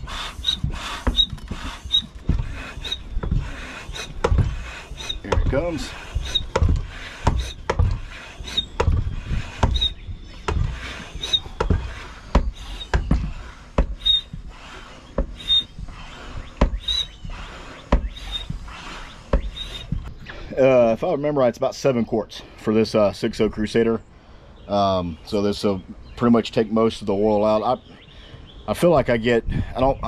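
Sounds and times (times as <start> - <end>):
hand pump knocking: 0.0 - 20.1
short high squeak: 14.0 - 17.3.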